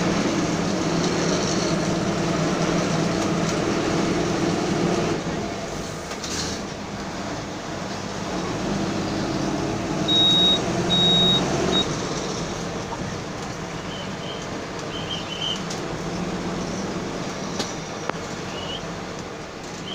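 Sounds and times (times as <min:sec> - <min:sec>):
bus engine and road rumble: 0:00.0 - 0:19.9.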